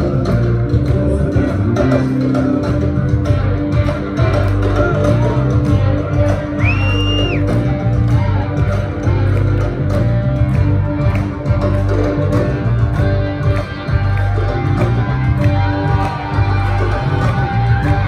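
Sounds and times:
live band with electric guitar: 0:00.0 - 0:18.0
high whistle: 0:06.6 - 0:07.5.

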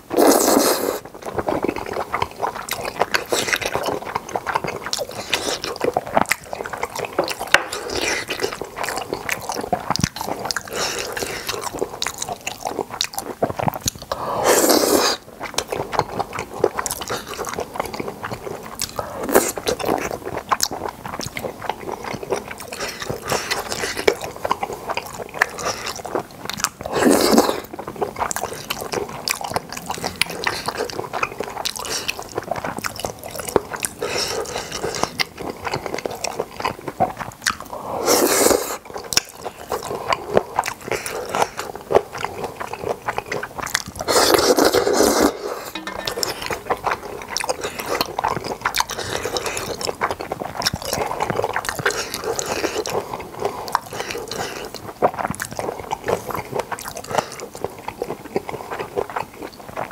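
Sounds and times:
noodle slurps: 0:00.1 - 0:01.1, 0:14.4 - 0:15.2, 0:44.0 - 0:48.0
crunchy chewing: 0:00.1 - 0:59.9.

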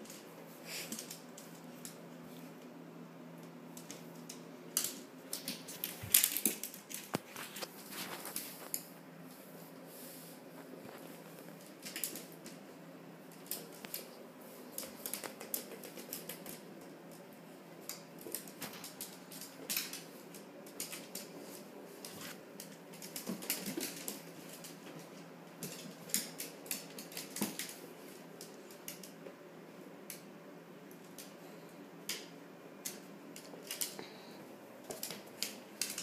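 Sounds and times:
low steady hum: 0:00.0 - 0:36.0
dog claws clicking on wooden floor: 0:03.8 - 0:08.8, 0:11.5 - 0:12.6, 0:14.7 - 0:17.3, 0:25.6 - 0:27.8, 0:34.8 - 0:36.0.

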